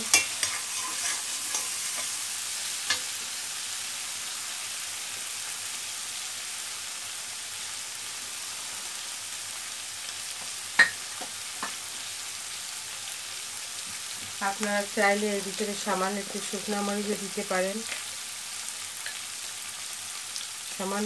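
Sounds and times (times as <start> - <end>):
metal spatula stirring: 0.0 - 2.2
food sizzling in a wok: 0.0 - 21.0.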